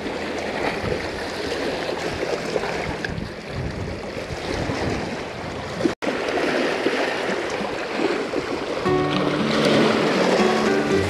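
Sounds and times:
wind buffeting microphone: 0.0s - 11.0s
sea waves splashing on rocks: 3.9s - 11.0s.

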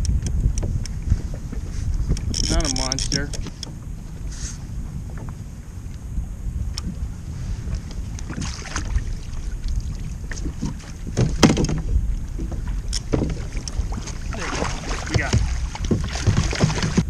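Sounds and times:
water lapping against kayak: 0.0s - 17.0s
wind rumbling on microphone: 0.0s - 17.0s
sharp knocks on kayak hull: 10.3s - 13.4s, 14.0s - 17.0s.

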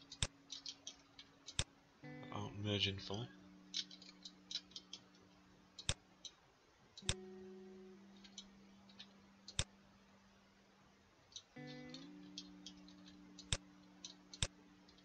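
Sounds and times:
computer mouse clicking: 5.8s - 6.4s, 7.0s - 7.2s, 8.2s - 9.7s, 11.3s - 15.0s.

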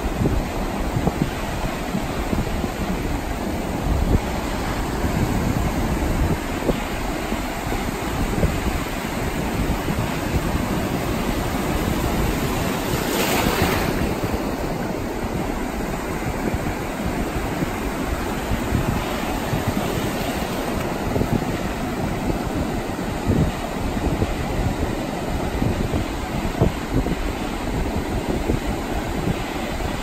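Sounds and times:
waves breaking on beach: 0.0s - 30.0s
wind rumble on microphone: 0.0s - 30.0s.

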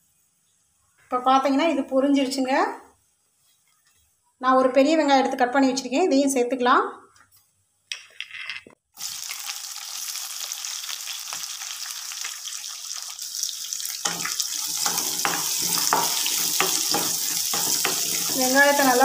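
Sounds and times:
onions sizzling in oil: 9.0s - 19.0s
spatula scraping pan: 14.0s - 19.0s.

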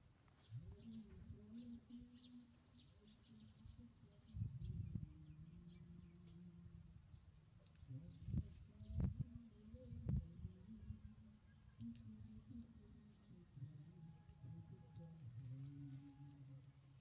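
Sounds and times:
insects chirping: 0.0s - 17.0s.

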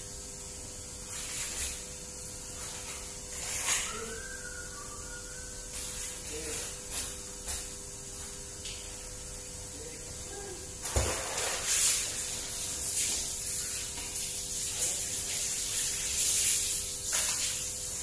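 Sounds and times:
water splashing on fish: 10.8s - 18.0s.

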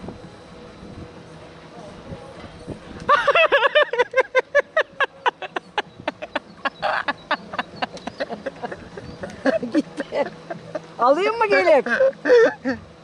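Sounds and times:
girl laughing hard: 3.1s - 10.9s, 11.8s - 12.9s.

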